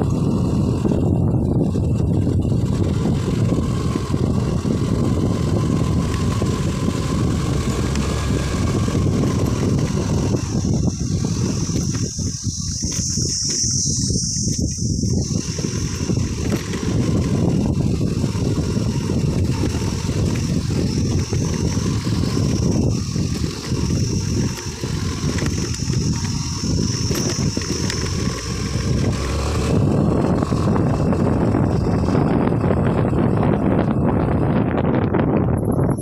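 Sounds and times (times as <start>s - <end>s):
motorcycle on dirt road: 0.0s - 36.0s
insect buzz: 9.4s - 29.7s.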